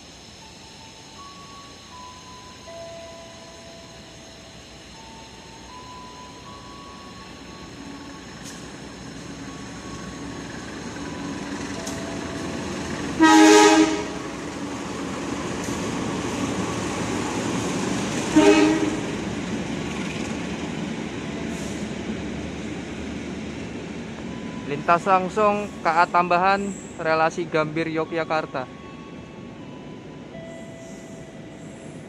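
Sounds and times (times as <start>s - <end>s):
rumble of passing train: 0.0s - 32.0s
locomotive horn blasts: 13.2s - 14.2s, 18.3s - 19.2s.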